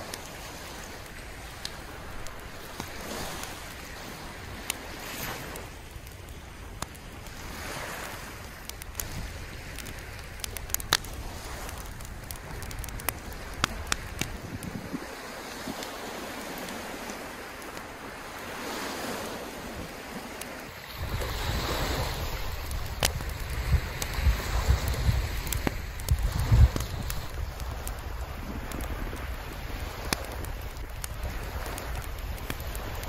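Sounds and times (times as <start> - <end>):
sea waves washing on shore: 0.0 - 33.0
wind buffeting microphone: 0.0 - 33.0.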